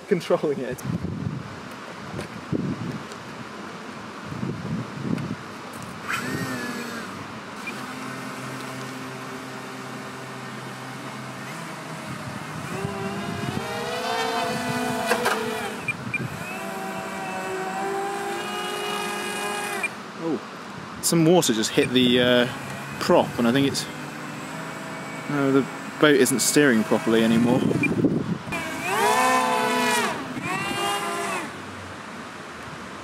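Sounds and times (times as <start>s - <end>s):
electric motors whining: 5.8s - 20.1s, 21.7s - 31.8s.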